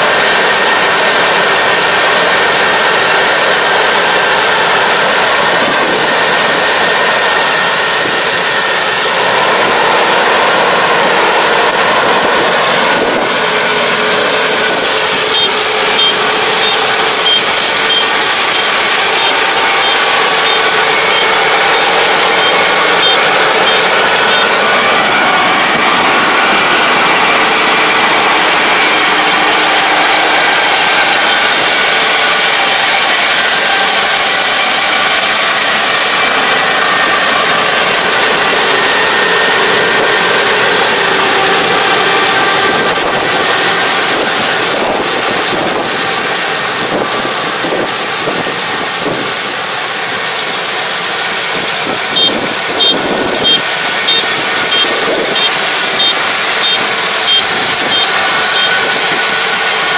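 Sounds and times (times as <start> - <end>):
combine harvester running: 0.0 - 59.9
high electronic beep: 15.1 - 24.6, 52.1 - 58.8.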